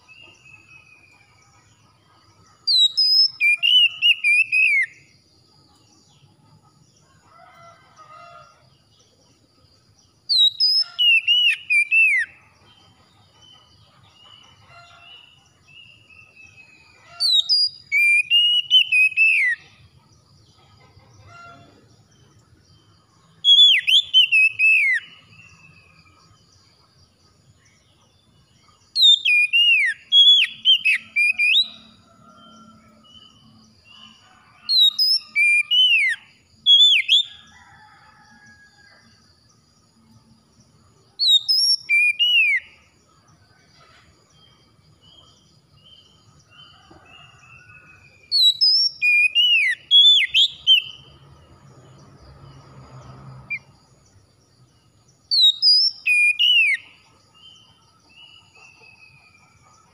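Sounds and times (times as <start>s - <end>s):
bird singing whistled phrases: 2.7s - 4.9s, 10.3s - 12.3s, 17.2s - 19.6s, 29.0s - 31.8s, 41.2s - 42.7s, 48.4s - 51.0s, 55.3s - 56.9s.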